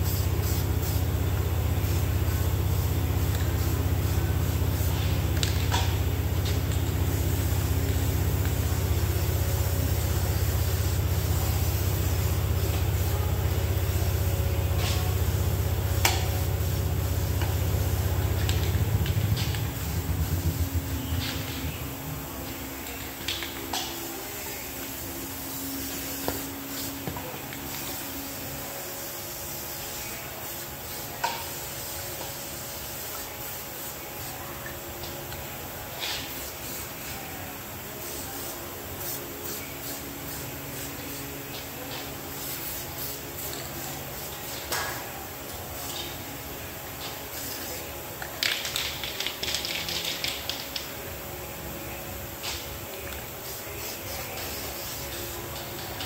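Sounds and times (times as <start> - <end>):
low steady hum: 0.0 - 26.6.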